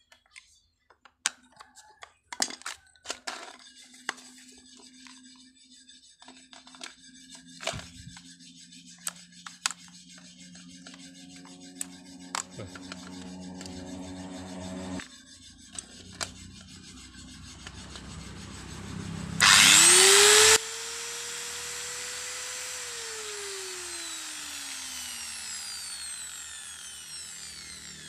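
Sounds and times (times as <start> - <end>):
angle grinder motor whining: 7.6 - 8.2, 9.0 - 28.0.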